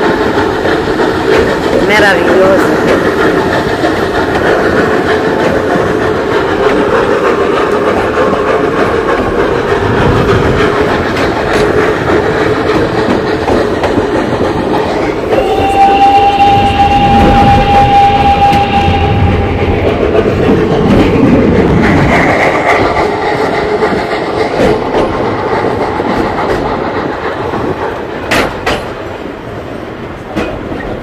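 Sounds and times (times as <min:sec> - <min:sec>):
steam train wheels clattering: 0:00.0 - 0:31.0
steam locomotive whistle blast: 0:15.3 - 0:20.2.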